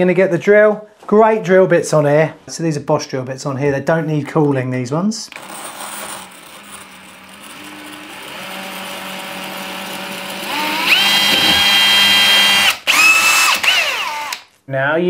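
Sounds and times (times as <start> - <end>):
cordless drill boring into tile: 5.3 - 14.5.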